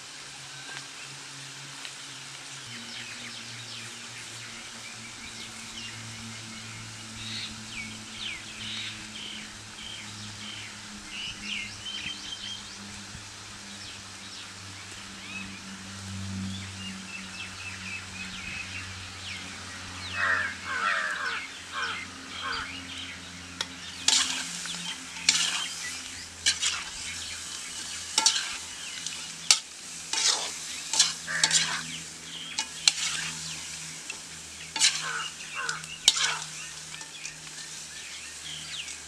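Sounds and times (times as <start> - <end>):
small birds chirping: 16.4 - 39.0
steady hiss: 18.2 - 39.0.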